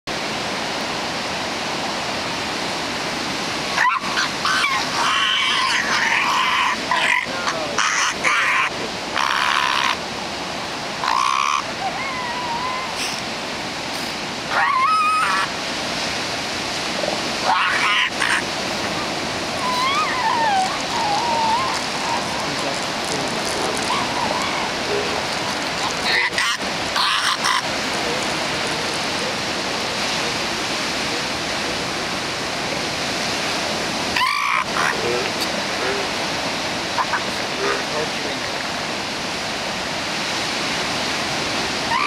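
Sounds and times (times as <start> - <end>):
hiss of surf: 0.1 - 42.0
elephant seals calling: 3.7 - 10.1, 11.0 - 13.3, 13.9 - 15.6, 16.9 - 29.5, 34.0 - 38.4, 41.8 - 42.0.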